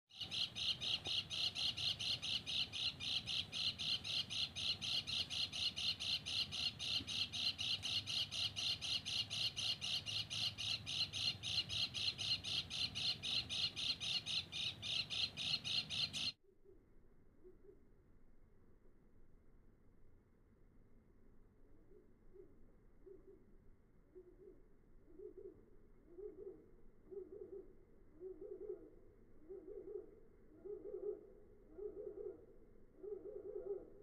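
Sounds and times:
rapid short high bird calls: 0.1s - 16.4s.

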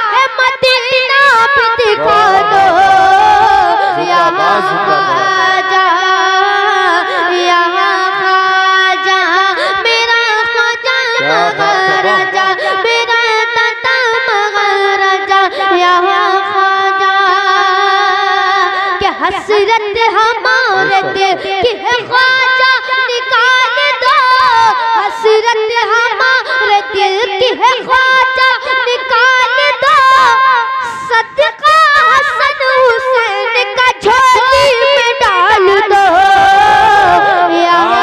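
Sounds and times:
boy singing into a microphone: 0.0s - 38.0s.

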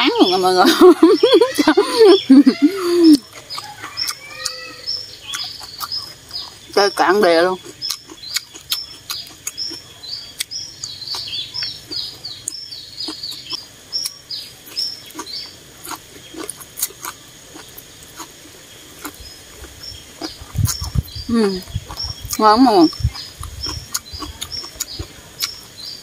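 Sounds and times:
small bird chirping: 0.0s - 26.0s
chewing: 2.6s - 6.8s, 7.5s - 25.9s.

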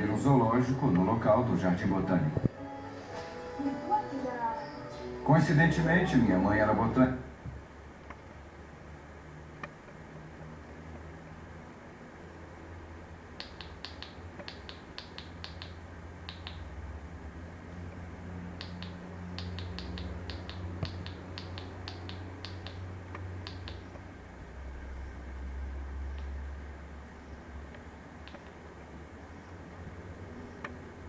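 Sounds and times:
steady low hum: 0.0s - 31.0s
remote control buttons clicking: 13.4s - 16.7s, 18.6s - 24.0s, 28.2s - 28.6s.

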